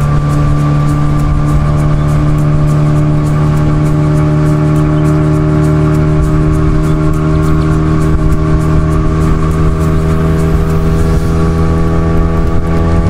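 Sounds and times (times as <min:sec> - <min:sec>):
outboard motor running: 0:00.0 - 0:13.0
water noise: 0:00.0 - 0:13.0
wind noise: 0:00.0 - 0:13.0.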